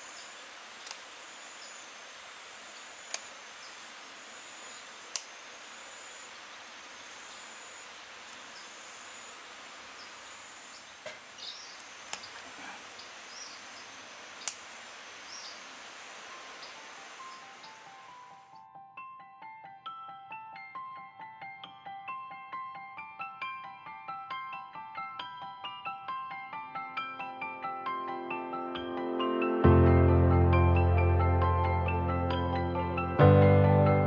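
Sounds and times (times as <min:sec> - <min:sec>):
steady outdoor hiss: 0:00.0 - 0:18.6
pruning shears snipping twigs: 0:00.8 - 0:01.1, 0:03.0 - 0:03.5, 0:05.0 - 0:05.5, 0:08.2 - 0:08.6, 0:11.0 - 0:13.0, 0:14.3 - 0:14.9.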